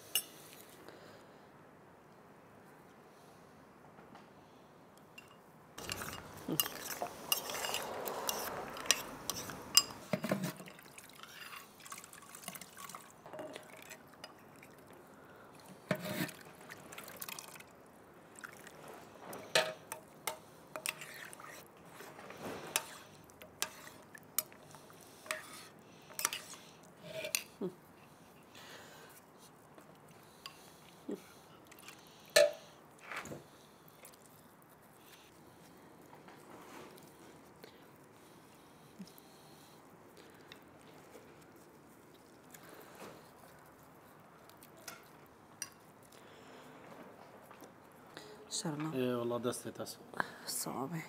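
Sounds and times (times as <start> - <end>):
utensils clinking on dishes: 5.2 - 12.7, 19.3 - 21.6, 22.6 - 27.6, 31.8 - 32.7
liquid pouring into container: 10.5 - 14.8.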